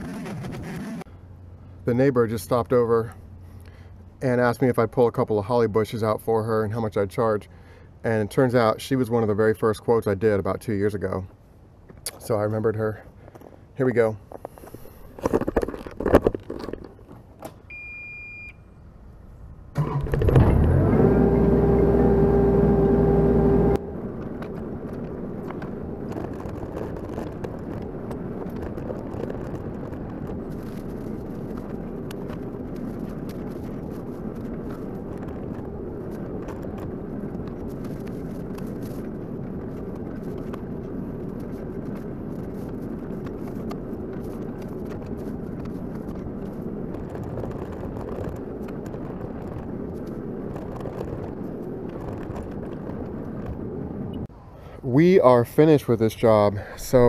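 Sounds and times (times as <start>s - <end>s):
loud humming: 19.8s - 23.8s
excavator engine running: 19.8s - 26.1s.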